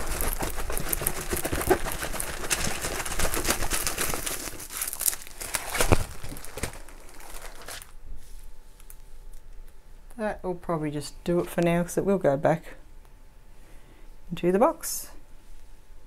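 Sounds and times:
plastic film crinkling: 0.0s - 8.0s.

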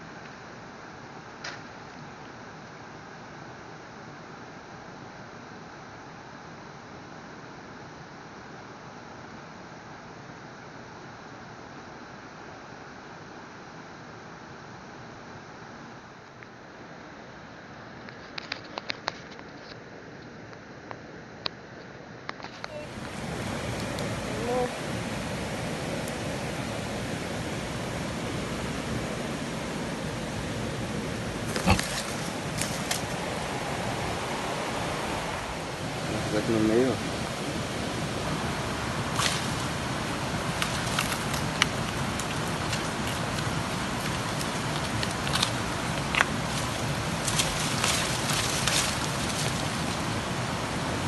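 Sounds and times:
running water rushing: 22.5s - 51.0s
bamboo sticks cracking and rustling: 31.5s - 33.3s, 39.2s - 39.8s, 40.4s - 50.2s.

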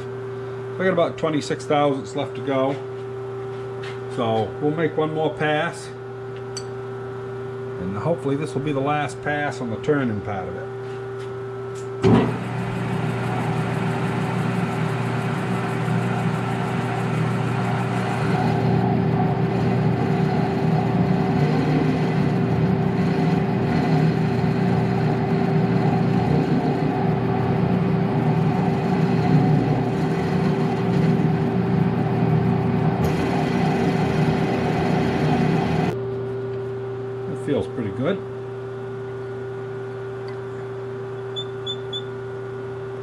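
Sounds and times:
motor hum: 10.8s - 43.0s
metal lathe machining: 12.1s - 36.0s.

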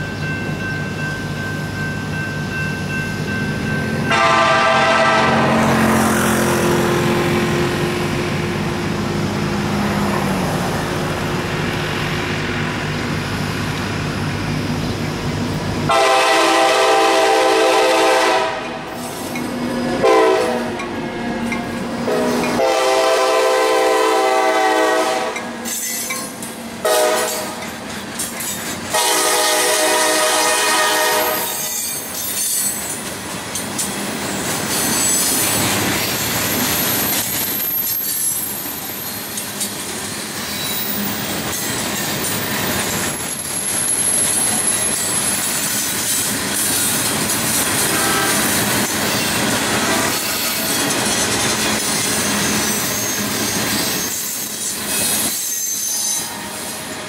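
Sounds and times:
diesel locomotive engine droning: 0.0s - 57.0s
train air horn blasts: 4.0s - 6.2s, 15.9s - 18.9s, 19.9s - 21.2s, 22.0s - 25.7s, 26.8s - 27.7s, 28.9s - 31.8s, 47.8s - 48.7s
freight cars rolling: 31.5s - 57.0s.

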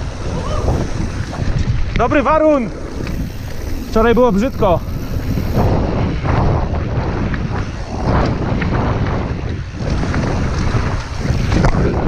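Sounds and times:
tyres on dirt: 0.0s - 12.0s
wind noise on microphone: 0.0s - 12.0s
bike knocks and rattles: 4.4s - 12.0s.

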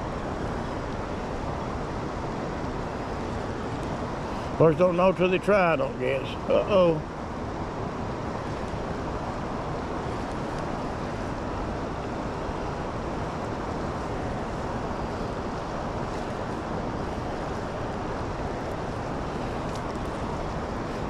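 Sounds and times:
river rushing over rocks: 0.0s - 21.0s.

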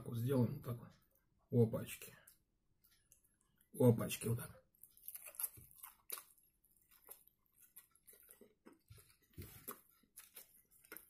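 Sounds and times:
man chewing: 4.7s - 11.0s.

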